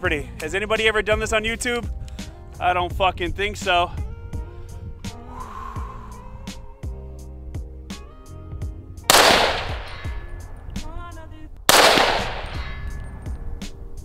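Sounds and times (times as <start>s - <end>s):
background music with a beat: 3.9s - 9.2s
gunshots with echo: 9.1s - 10.2s, 11.7s - 13.0s.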